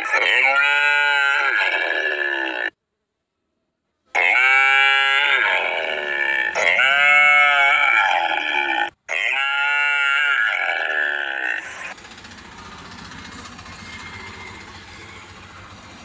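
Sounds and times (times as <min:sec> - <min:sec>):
calf bawling: 0:00.0 - 0:02.8, 0:04.1 - 0:12.0.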